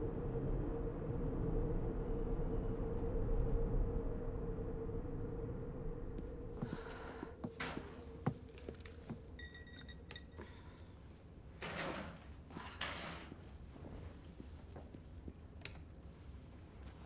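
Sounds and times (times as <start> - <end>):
low hum: 0.0 - 11.6.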